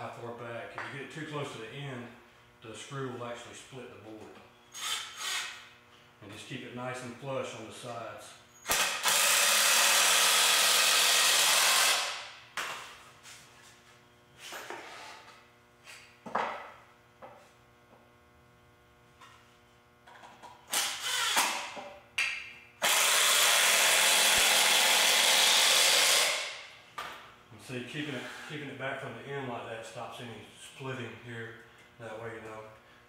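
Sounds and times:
impact screwdriver driving screws: 20.7 - 21.6.

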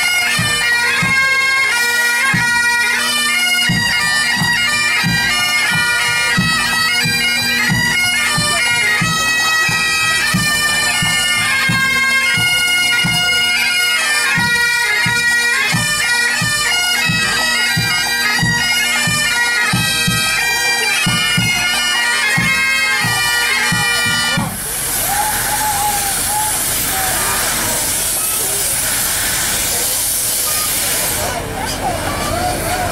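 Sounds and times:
bagpipe band playing: 0.0 - 32.9
drum beating: 3.6 - 13.5, 21.0 - 29.9.

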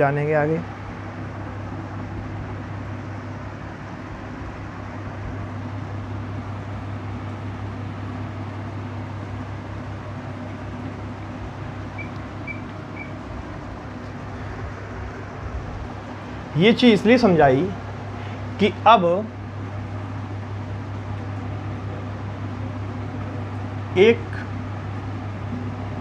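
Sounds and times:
room noise hum and hiss: 0.0 - 26.0
faint high-pitched beeps: 12.0 - 13.2.

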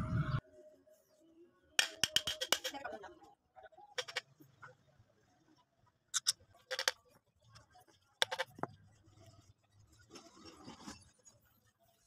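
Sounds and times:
metal parts clinking and knocking: 1.8 - 2.8, 4.0 - 4.2, 6.2 - 7.0, 8.2 - 8.7.

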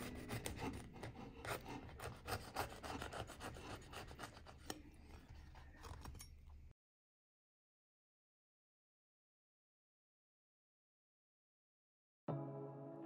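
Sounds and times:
knife rasping through crisp crust: 0.0 - 6.4.

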